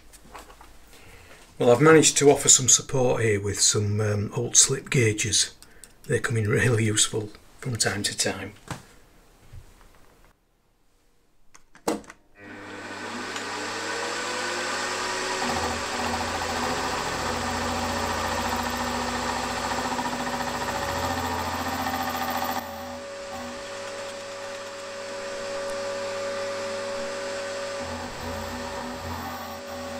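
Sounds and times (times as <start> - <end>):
end mill cutting metal: 12.4 - 29.9
milling machine spindle humming: 12.4 - 29.9.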